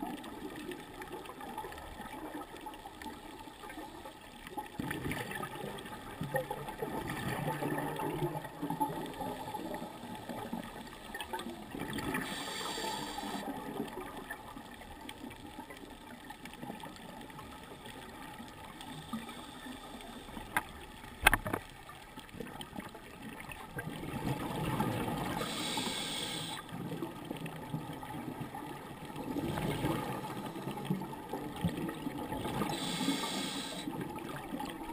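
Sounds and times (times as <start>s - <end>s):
exhaled air bubbling underwater: 0.0s - 34.9s
regulator inhalation hiss: 12.2s - 13.4s, 25.4s - 26.6s, 32.7s - 33.9s.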